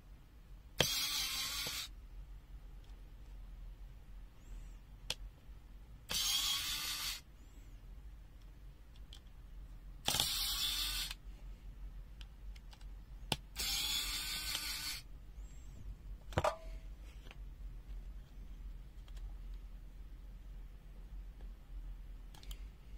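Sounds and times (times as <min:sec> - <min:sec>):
whirring mechanical noise: 0:00.7 - 0:02.0, 0:06.0 - 0:07.3, 0:10.0 - 0:11.2, 0:12.2 - 0:16.0.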